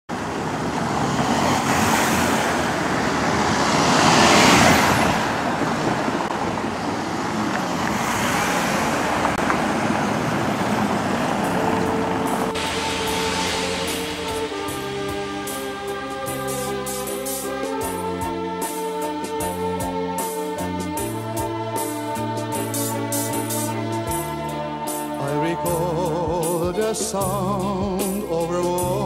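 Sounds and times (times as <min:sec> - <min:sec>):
music: 0:11.7 - 0:29.0.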